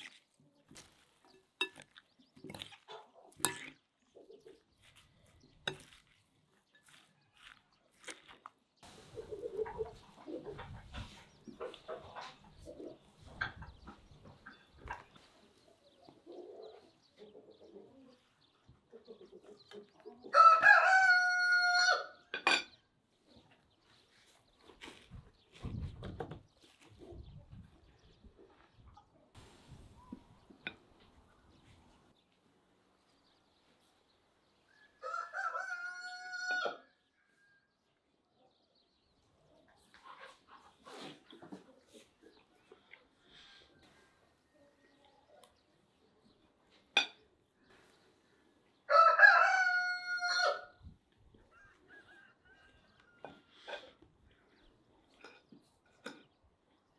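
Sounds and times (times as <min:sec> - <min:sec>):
fork clinking on a plate: 0:01.6 - 0:02.0, 0:03.4 - 0:03.8, 0:22.4 - 0:22.8
rooster crowing: 0:20.3 - 0:22.2, 0:34.8 - 0:37.7, 0:48.9 - 0:50.8, 0:51.5 - 0:53.4.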